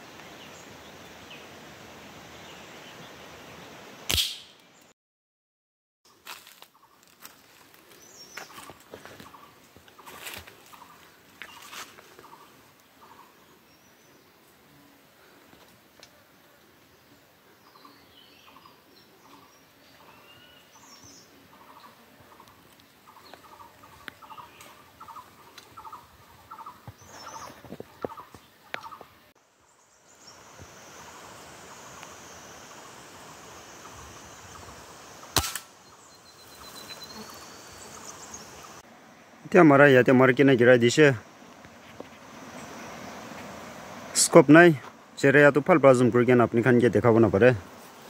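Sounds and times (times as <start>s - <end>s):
air rifle shot: 4.1s - 4.6s, 35.3s - 35.8s
small birds chirping: 6.1s - 15.4s, 16.6s - 38.8s.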